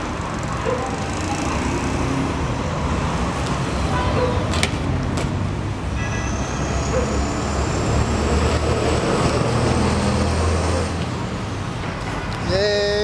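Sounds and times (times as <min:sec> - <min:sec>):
street traffic rumble: 0:00.0 - 0:13.0.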